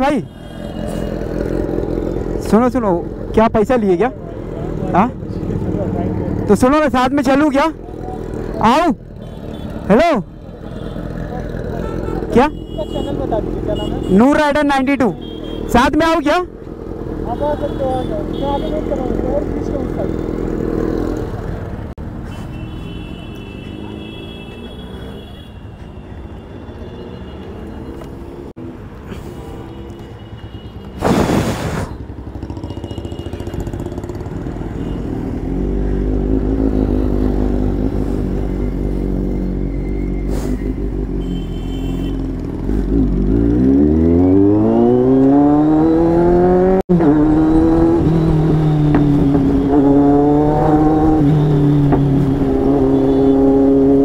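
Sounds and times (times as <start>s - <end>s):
motorcycle engine revving: 16.6s - 22.0s, 32.0s - 54.0s.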